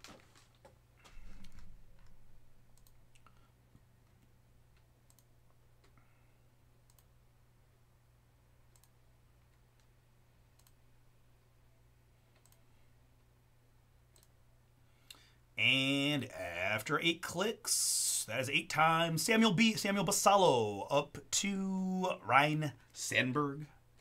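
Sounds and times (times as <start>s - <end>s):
low steady hum: 0.0s - 24.0s
computer mouse clicks: 2.8s - 3.4s, 4.2s - 6.0s, 6.8s - 7.1s, 8.7s - 9.9s, 10.5s - 10.8s, 12.3s - 12.7s, 14.1s - 14.3s.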